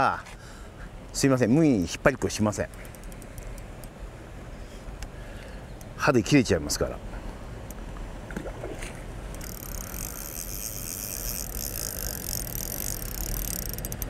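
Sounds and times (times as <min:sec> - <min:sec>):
fishing reel drag buzzing: 0:02.7 - 0:03.9, 0:09.3 - 0:14.0.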